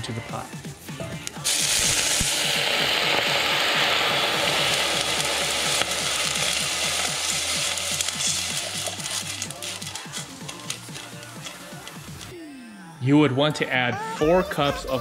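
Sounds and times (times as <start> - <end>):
water sizzling in hot pot: 1.2 - 12.3.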